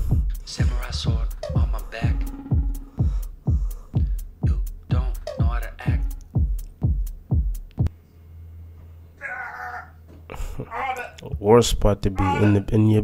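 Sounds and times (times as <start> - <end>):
electronic music with kick drum: 0.0 - 7.9
low steady hum: 4.7 - 13.0
person speaking: 10.6 - 13.0.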